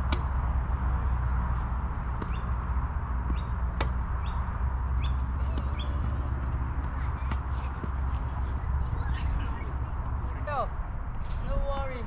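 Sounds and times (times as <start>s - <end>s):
tennis balls struck by racquets: 0.0s - 8.6s
steady low rumble: 0.0s - 12.0s
birds chirping: 2.0s - 10.5s.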